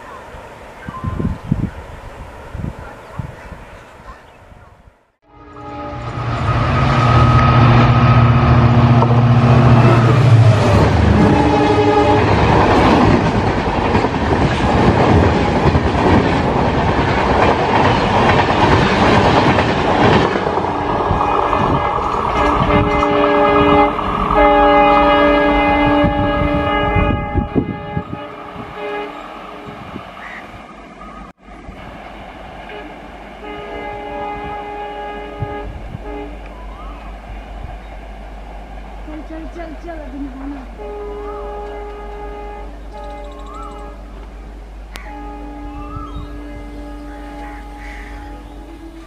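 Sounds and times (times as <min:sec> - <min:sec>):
diesel locomotive engine rumble: 0:00.0 - 0:49.0
multi-tone train horn: 0:05.2 - 0:13.3, 0:20.0 - 0:30.4, 0:32.7 - 0:37.2, 0:39.0 - 0:49.0
train wheels clattering: 0:06.8 - 0:25.7.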